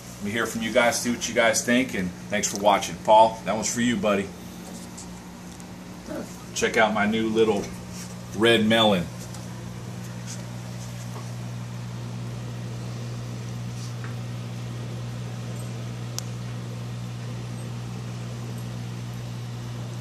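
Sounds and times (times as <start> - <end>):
aquarium pump humming: 0.0 - 20.0
small click: 15.5 - 16.4.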